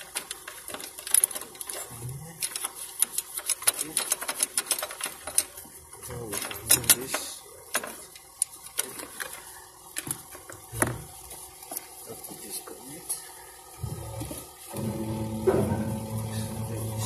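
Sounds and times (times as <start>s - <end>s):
plastic connectors clicking and rattling: 0.0s - 5.6s.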